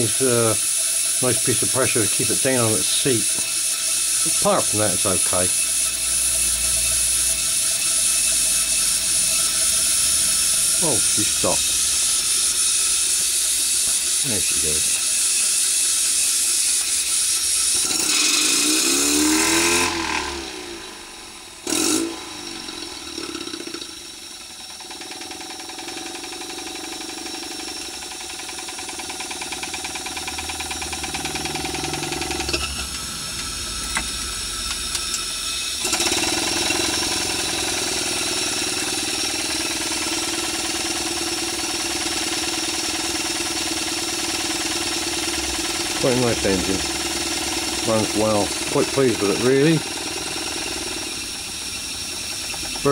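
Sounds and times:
steam engine rattling beat: 0.0 - 12.8, 42.8 - 50.8
loud steam hissing: 0.0 - 29.4, 30.8 - 52.9.

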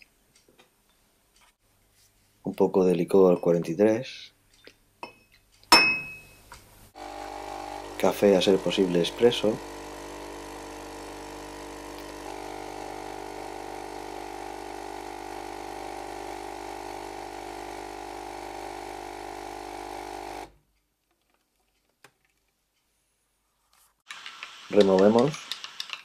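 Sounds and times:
espresso machine pump humming: 7.0 - 20.5.

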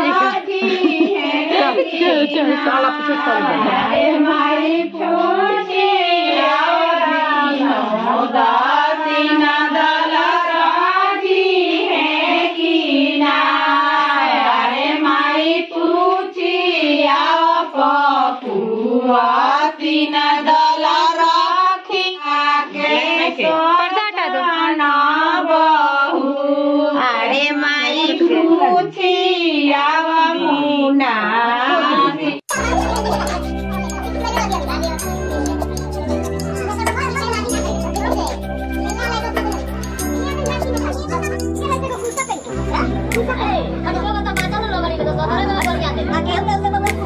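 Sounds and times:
woman singing unaccompanied: 0.0 - 18.2, 18.8 - 32.4.

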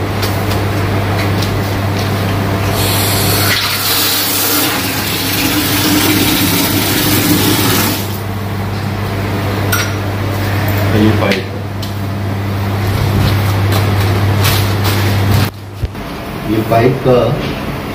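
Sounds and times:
steady low hum: 0.0 - 17.9
water gushing from tap: 2.8 - 8.2.

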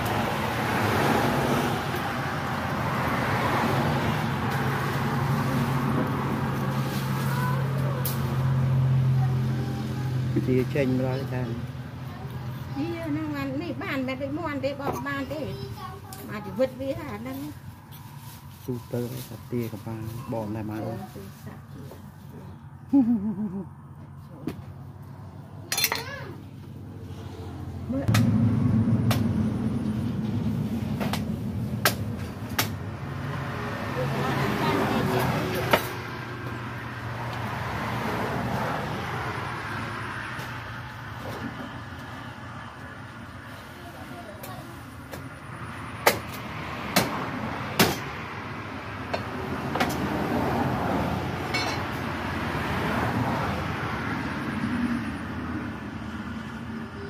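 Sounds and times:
passing vehicle rumble: 0.0 - 57.0.

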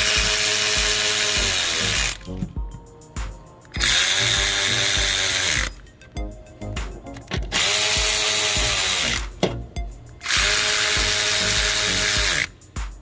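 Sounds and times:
electric ratchet motor whining: 0.0 - 2.3, 3.8 - 5.8, 7.5 - 9.4, 10.2 - 12.6.

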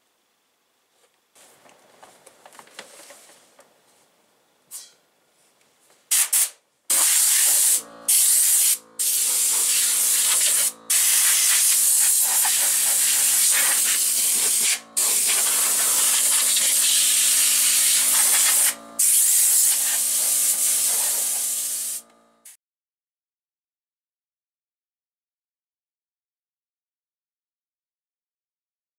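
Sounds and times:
compressor hum: 0.0 - 22.5
compressed air hissing: 6.1 - 22.6.

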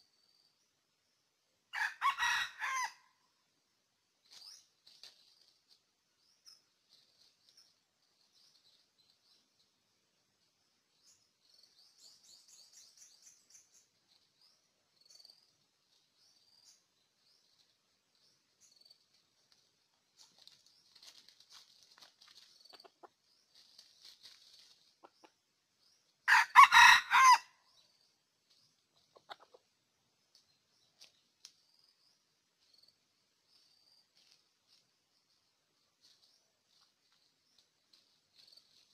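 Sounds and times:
rooster crowing: 1.7 - 3.1, 26.3 - 27.6
small birds chirping: 4.2 - 26.3, 27.6 - 38.9.

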